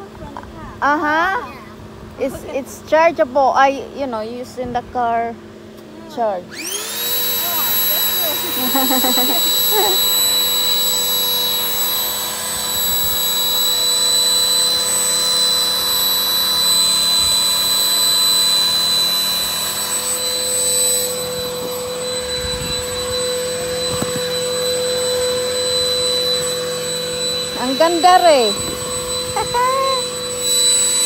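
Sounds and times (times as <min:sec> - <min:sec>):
electric air pump whining: 0:00.8 - 0:31.0.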